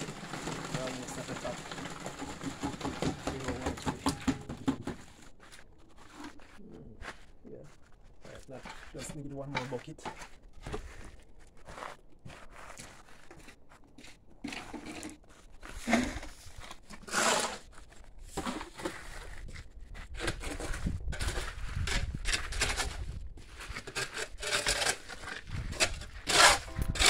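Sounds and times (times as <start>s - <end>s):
concrete mix scooped into bucket: 0.0s - 4.2s, 14.0s - 27.0s
shovel scraping concrete: 0.0s - 4.7s, 14.4s - 19.4s, 20.1s - 27.0s.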